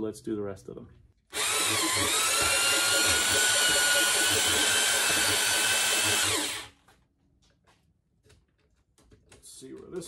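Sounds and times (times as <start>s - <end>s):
drill motor whine: 1.3s - 6.7s.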